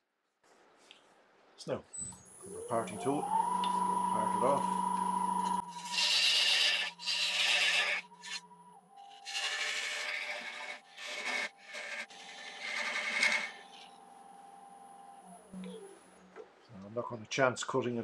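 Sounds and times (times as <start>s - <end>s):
lathe whine: 2.3s - 16.2s
tool scraping spinning wood: 2.7s - 14.2s.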